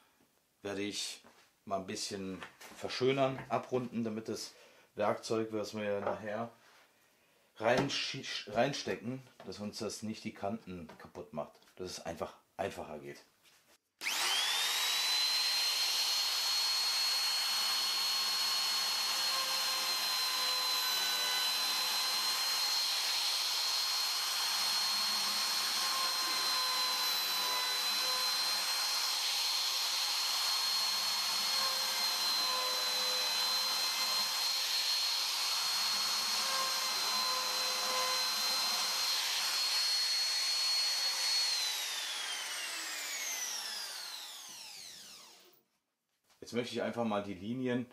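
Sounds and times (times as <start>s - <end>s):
router whining and cutting wood: 14.0s - 45.6s.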